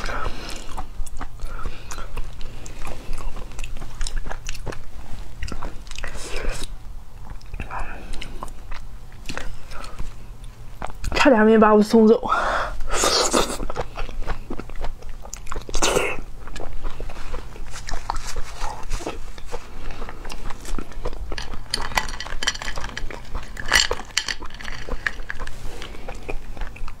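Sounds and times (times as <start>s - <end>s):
person chewing crunchy food: 0.0s - 11.2s, 12.8s - 27.0s.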